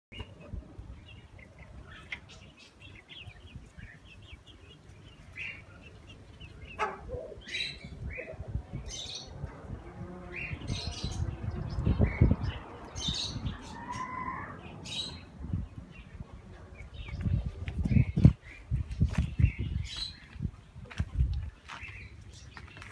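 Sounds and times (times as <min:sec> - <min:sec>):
chickens chirping and calling: 0:00.1 - 0:22.9.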